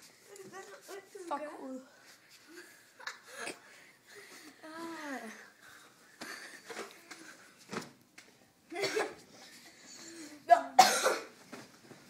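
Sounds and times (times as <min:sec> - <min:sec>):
boy coughing: 0:08.8 - 0:09.2, 0:10.5 - 0:11.4.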